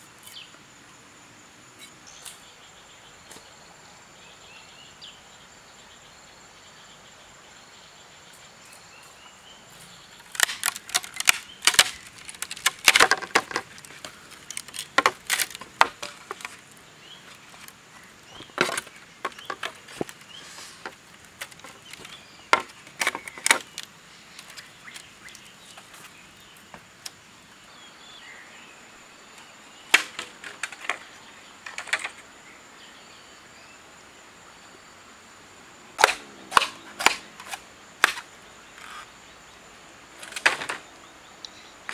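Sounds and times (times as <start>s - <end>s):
high insect drone: 0.0s - 41.9s
bamboo cracking and snapping: 10.2s - 17.8s, 18.5s - 26.1s, 29.9s - 32.2s, 36.0s - 39.0s, 40.2s - 40.8s.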